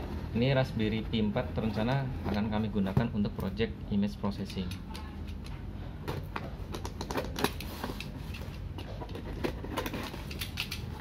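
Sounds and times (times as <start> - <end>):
knife cutting tape and cardboard: 7.0 - 11.0.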